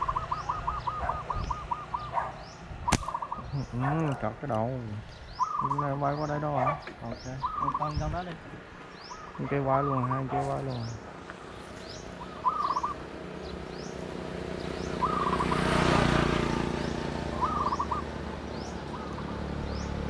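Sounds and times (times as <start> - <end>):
doves cooing: 0.0 - 4.3, 5.4 - 8.1, 11.9 - 13.0, 14.8 - 16.2, 17.2 - 18.2, 18.8 - 20.0
small birds chirping: 0.0 - 20.0.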